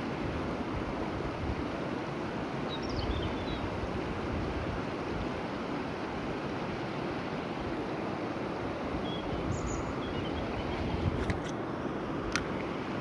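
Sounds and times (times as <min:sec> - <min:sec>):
wind rumble on microphone: 0:00.0 - 0:01.8, 0:02.8 - 0:05.4, 0:08.9 - 0:11.5
river water rushing over stones: 0:00.0 - 0:13.0.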